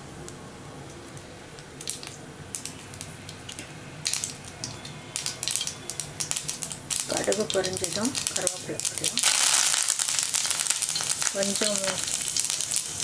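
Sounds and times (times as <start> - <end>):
faint sizzle: 0.0 - 13.0
seeds popping in hot oil: 1.1 - 13.0.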